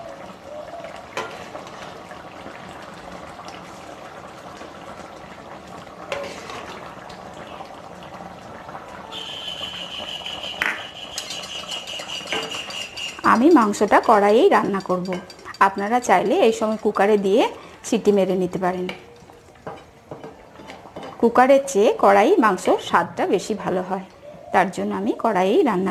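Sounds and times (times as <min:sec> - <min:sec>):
curry bubbling and sizzling: 0:00.0 - 0:25.9
utensil knocking against pan: 0:10.6 - 0:17.4.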